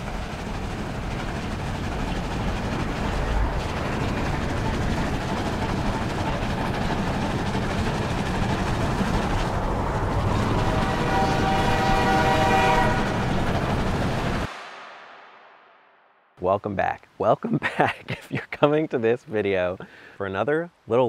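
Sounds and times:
train running on rails: 0.0s - 14.7s
train horn chord: 10.3s - 13.4s.

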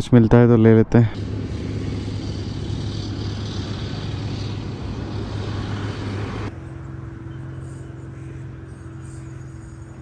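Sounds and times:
wind rush: 1.1s - 6.5s
motorcycle engine running: 1.2s - 9.8s.

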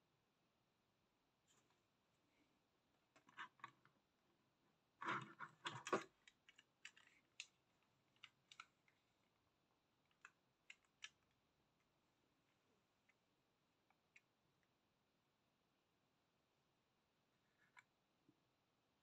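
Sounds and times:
faint clicks and taps: 5.0s - 9.0s, 10.0s - 11.9s.

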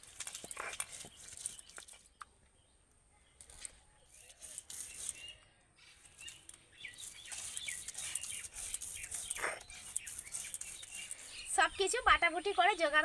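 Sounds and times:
small birds chirping: 0.1s - 13.0s
stone roller scraping on stone: 4.2s - 5.4s, 6.2s - 11.5s.

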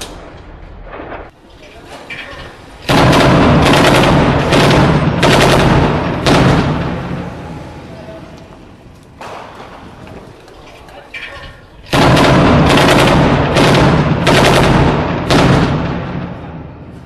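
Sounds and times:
heavy weapons fire blasts: 2.5s - 7.9s, 11.9s - 16.9s.

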